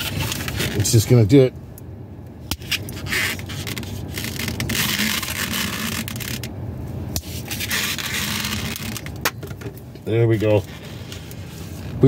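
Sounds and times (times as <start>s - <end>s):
balloon rubbing against fingers: 2.5s - 6.5s, 7.2s - 9.1s.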